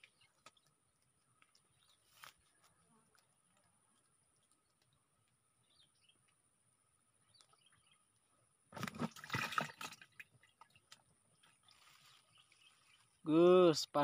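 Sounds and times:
faint ticks and rustles: 0.0 - 6.5, 10.2 - 13.2
water splashing: 8.8 - 11.0.

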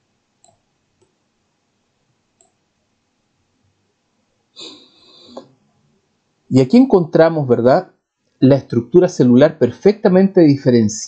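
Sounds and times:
faint computer mouse clicks: 0.4 - 1.2, 2.4 - 2.6.

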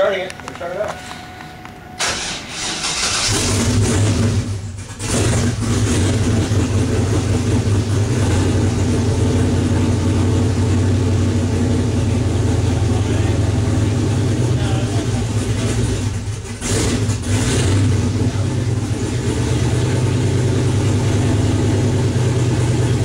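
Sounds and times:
engine starting and running: 0.5 - 23.0
starter motor cranking: 2.0 - 5.6.

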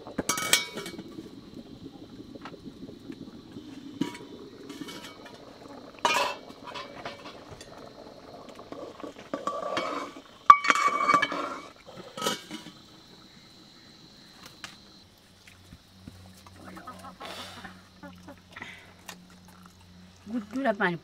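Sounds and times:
metal pot and lid clanking: 0.2 - 1.0, 4.0 - 5.4, 6.0 - 7.7, 9.3 - 12.8.

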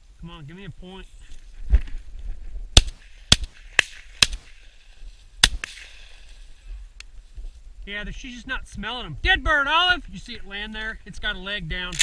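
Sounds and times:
shotgun shots: 2.8 - 4.6, 5.4 - 6.1.

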